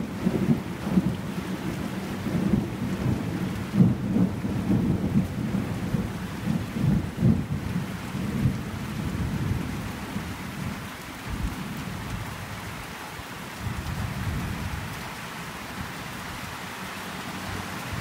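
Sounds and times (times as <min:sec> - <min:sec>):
thunder rumbling: 0:00.0 - 0:12.3
steady rain hissing: 0:00.0 - 0:18.0.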